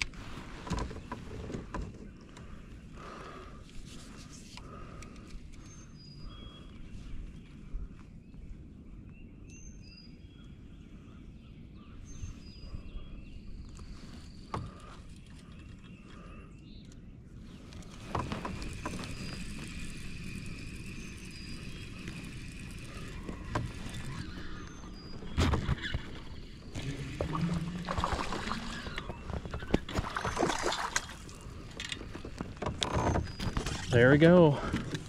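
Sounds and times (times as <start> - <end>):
whirring noise with high whine: 13.4 - 34.0
low steady rumble: 17.4 - 29.5.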